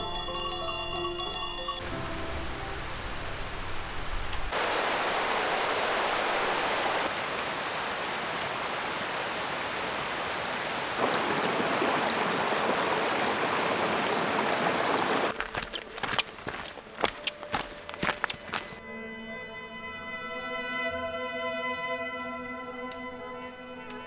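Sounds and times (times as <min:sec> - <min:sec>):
mountain stream rushing: 0:01.8 - 0:18.8
footsteps on stony ground: 0:15.3 - 0:18.8.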